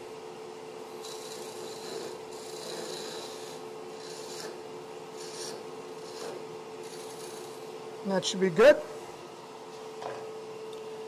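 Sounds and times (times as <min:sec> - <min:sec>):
wood lathe humming: 0:00.0 - 0:08.0.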